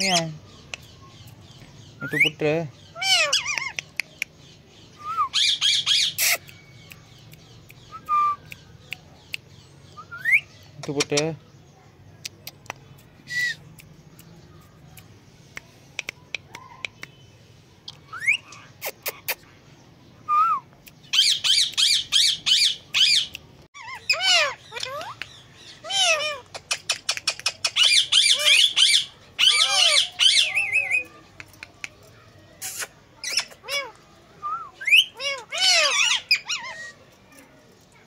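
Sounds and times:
parakeets chirping and screeching: 0.0s - 4.0s, 4.6s - 6.8s, 21.0s - 31.4s, 32.1s - 34.2s, 34.8s - 38.0s
parakeet clicks: 3.4s - 4.4s, 12.2s - 17.2s, 26.4s - 28.0s, 31.0s - 33.5s.

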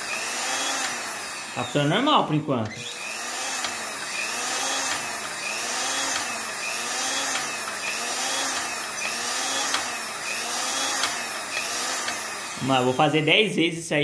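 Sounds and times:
sewing machine motor running: 0.0s - 13.3s
sharp clicks: 3.6s - 4.1s, 8.5s - 10.0s, 11.0s - 12.3s.

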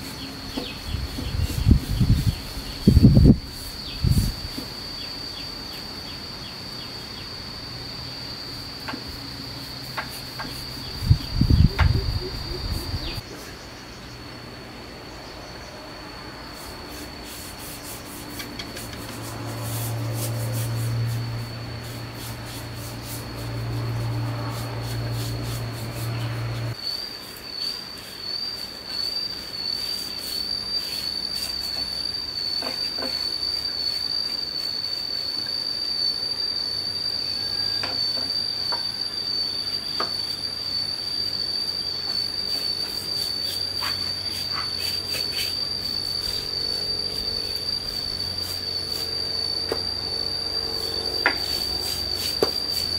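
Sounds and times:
insects droning: 0.0s - 52.9s
paintbrush scratching on wood: 16.6s - 26.8s.

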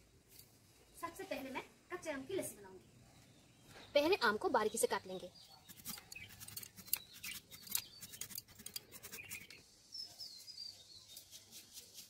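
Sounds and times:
small birds chirping: 0.1s - 12.0s.

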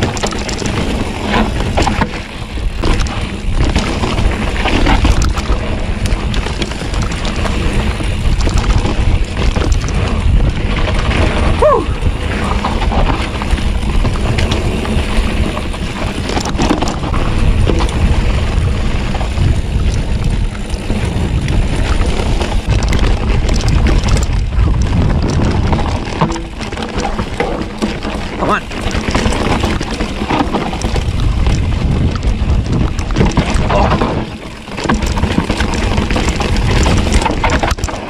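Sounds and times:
bike clicks and rattles: 0.0s - 38.0s
bike tyres rolling on dirt: 0.0s - 38.0s
wind buffeting microphone: 0.0s - 38.0s.

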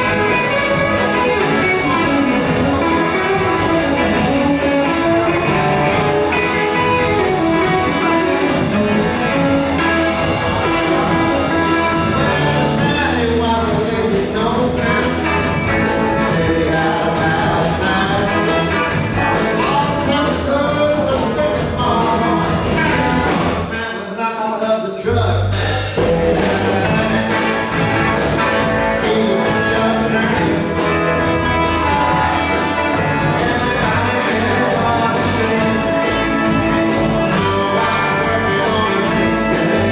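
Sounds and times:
amplified harmonica: 0.0s - 13.2s
electric blues band playing: 0.0s - 39.9s
person singing: 0.0s - 39.9s.

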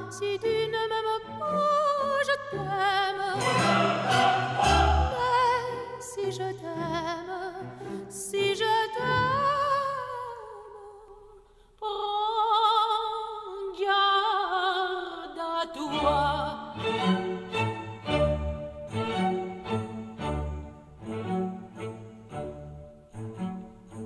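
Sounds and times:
woman singing opera: 0.0s - 16.9s
light orchestral accompaniment: 0.1s - 9.4s, 15.8s - 24.0s.

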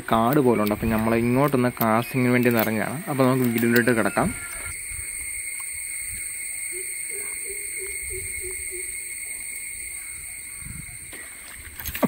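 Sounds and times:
high-pitched insect drone: 2.1s - 11.5s.

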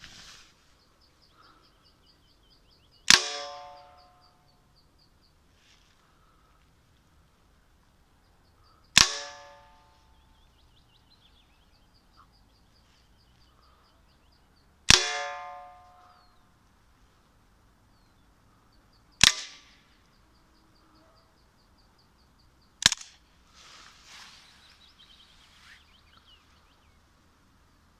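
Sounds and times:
rustling: 0.0s - 1.0s, 5.4s - 7.6s, 23.0s - 26.6s
bird chirping: 0.0s - 6.8s, 7.4s - 16.6s, 17.6s - 27.9s
air pistol shots: 3.0s - 4.0s, 8.9s - 9.9s, 14.9s - 16.1s, 19.2s - 19.8s, 22.8s - 23.2s.

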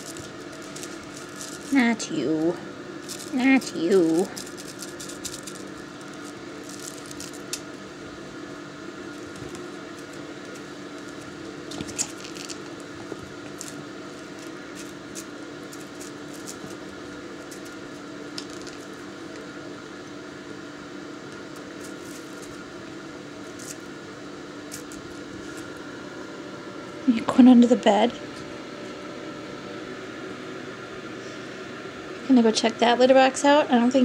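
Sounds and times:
kitten rustling on towel: 0.0s - 19.5s, 21.5s - 24.0s
room noise hum: 0.0s - 34.0s.

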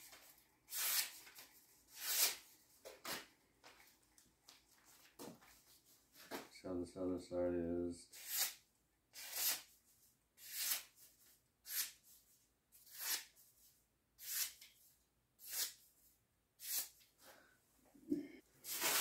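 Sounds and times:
knife slicing paper: 0.7s - 2.4s, 9.2s - 9.7s, 10.4s - 11.0s, 12.8s - 13.4s, 14.2s - 14.6s, 16.6s - 17.0s, 18.6s - 19.0s.

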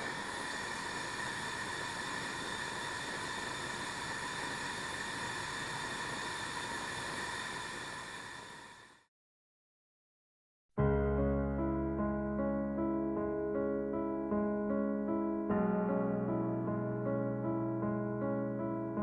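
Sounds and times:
gas torch hissing: 0.0s - 9.1s.

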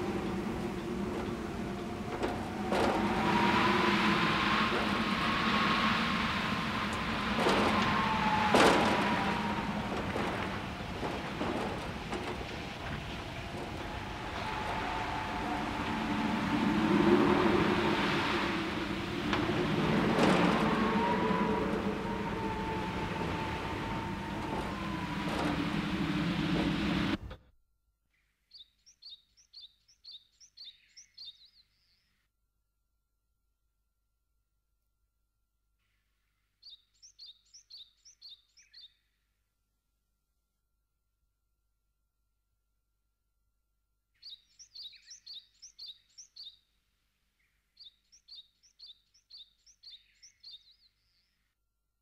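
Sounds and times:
loud droning noise: 0.0s - 27.4s.

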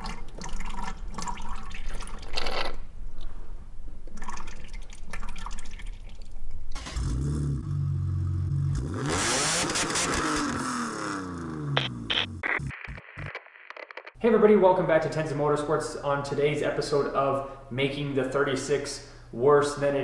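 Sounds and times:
fluid dripping into a bucket: 0.0s - 2.6s, 4.0s - 6.8s
car engine running and revving: 6.8s - 11.6s.

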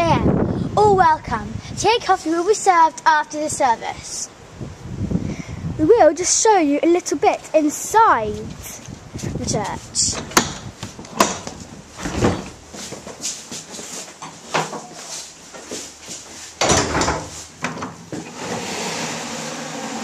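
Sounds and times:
door clatter: 10.1s - 12.6s, 16.6s - 18.7s
wooden doors clicking and knocking: 10.1s - 12.6s, 16.6s - 18.7s.

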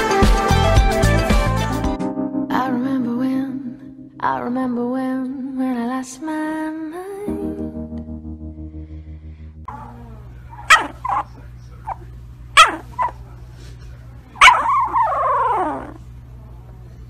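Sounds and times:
puppy whining howl: 9.7s - 11.3s, 12.6s - 13.1s, 14.4s - 16.0s
puppy yipping: 9.7s - 13.2s, 14.4s - 16.0s.

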